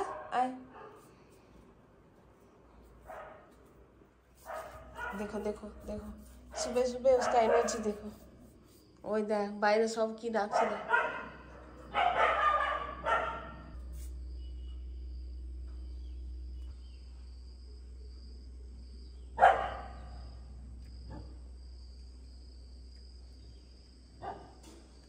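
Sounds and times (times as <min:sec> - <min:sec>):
puppy barking: 0:04.5 - 0:05.5, 0:06.5 - 0:08.1, 0:10.5 - 0:13.8, 0:19.4 - 0:20.2, 0:24.2 - 0:24.6.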